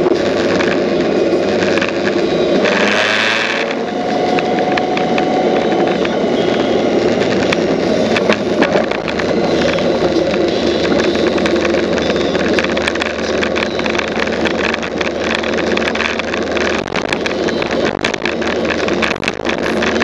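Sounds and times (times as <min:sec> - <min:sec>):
motorcycle engine running: 0:00.0 - 0:20.0
wind and road noise: 0:00.0 - 0:20.0.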